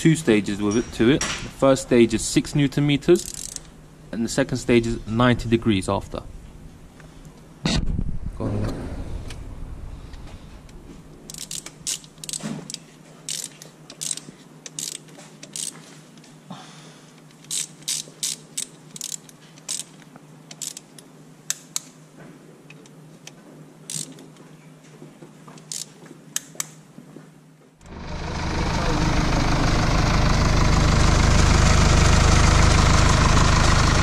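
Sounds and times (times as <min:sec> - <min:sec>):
torque wrench ratchet clicking: 0:03.1 - 0:03.7, 0:11.3 - 0:15.8, 0:17.4 - 0:21.9, 0:23.9 - 0:24.2, 0:25.6 - 0:26.7.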